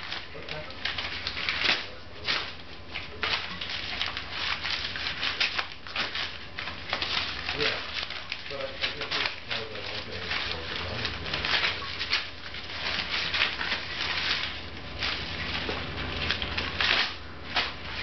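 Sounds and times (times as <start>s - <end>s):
dog tearing paper: 0.0s - 18.0s.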